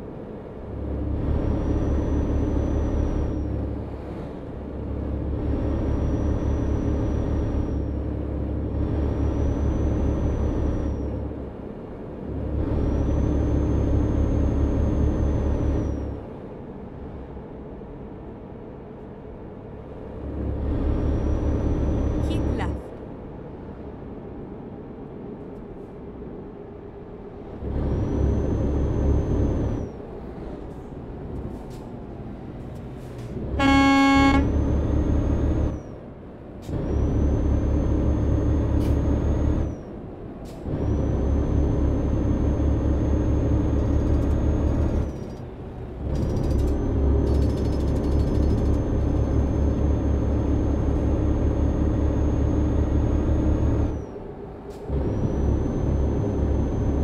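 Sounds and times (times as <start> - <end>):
horn blast: 33.6 - 34.6
vehicle engine pulling hard: 40.5 - 57.0.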